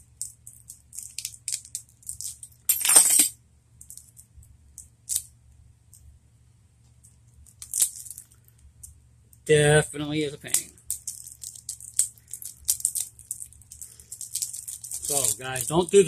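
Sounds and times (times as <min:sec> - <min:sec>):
plastic packaging rattling and clicking: 0:10.5 - 0:16.0.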